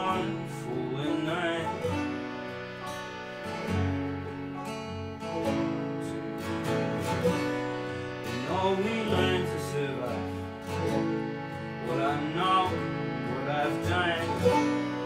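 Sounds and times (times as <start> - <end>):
person singing: 0.0 - 2.4, 5.2 - 6.4, 8.2 - 15.0
acoustic guitar: 0.0 - 15.0
harmonium chords: 0.0 - 15.0
picked banjo: 0.0 - 15.0.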